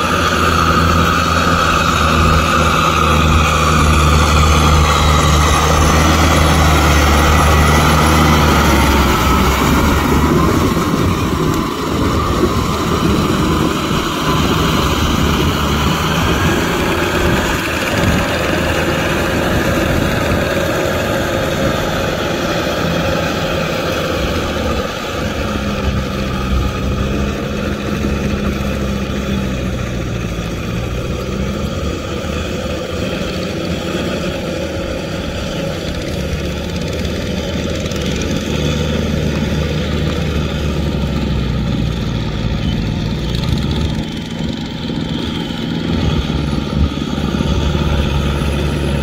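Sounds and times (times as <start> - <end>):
rotavator churning wet mud: 0.0 - 49.0
tractor diesel engine under load: 0.0 - 49.0.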